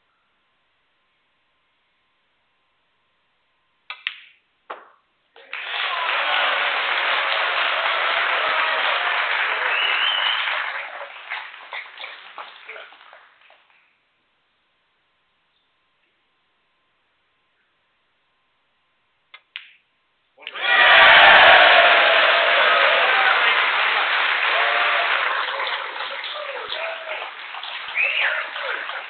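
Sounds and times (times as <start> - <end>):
audience applauding: 5.4 - 13.6, 20.4 - 29.0.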